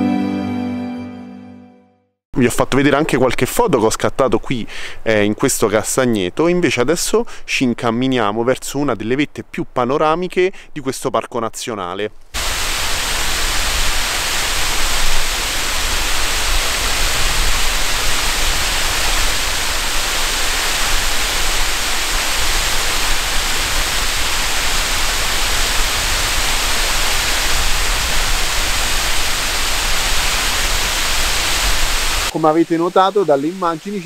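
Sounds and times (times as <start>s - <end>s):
waterfall and stream rushing: 12.4s - 34.0s.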